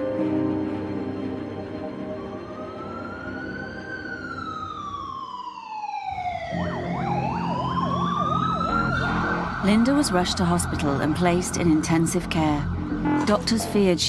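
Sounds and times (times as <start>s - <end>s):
wailing siren: 1.5s - 13.8s
fast yelping siren: 2.4s - 13.2s
low road rumble: 6.3s - 14.0s.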